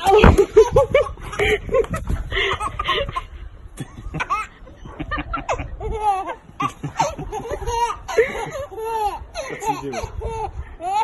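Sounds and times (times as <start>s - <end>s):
baby laughing: 0.0s - 11.0s.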